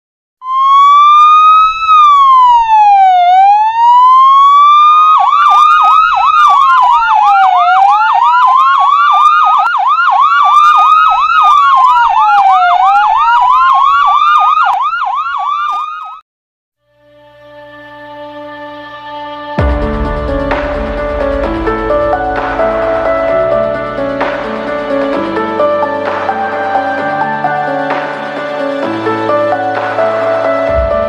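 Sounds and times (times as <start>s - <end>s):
siren wailing: 0.4s - 16.2s, 17.7s - 31.0s
siren yelping chirps: 0.4s - 16.2s.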